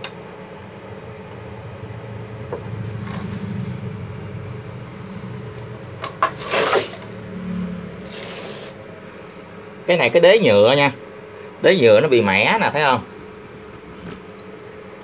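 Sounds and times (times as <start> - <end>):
steady low hum: 0.0 - 15.0
brief scrape: 6.3 - 7.1, 8.0 - 8.8.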